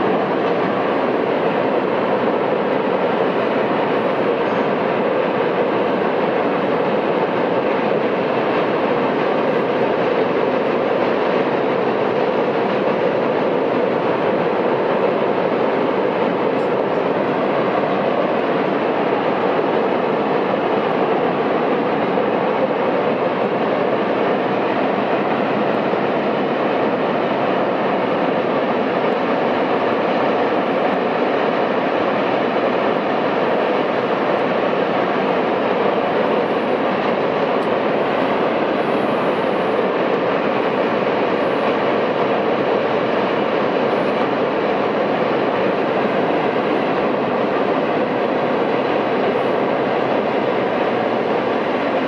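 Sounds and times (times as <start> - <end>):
train wheels rumbling on bridge: 0.0 - 52.0.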